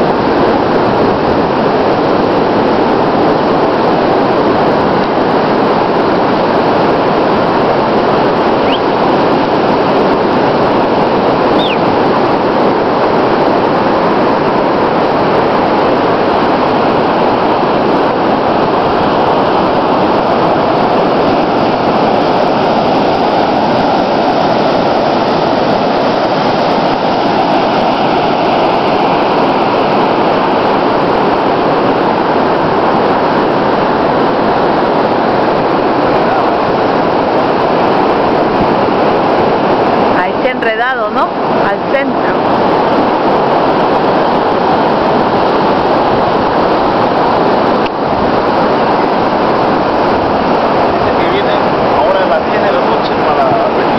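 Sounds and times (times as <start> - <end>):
surf on a beach: 0.0 - 53.9
wind buffeting microphone: 0.0 - 53.9
faint chirps: 11.6 - 11.8.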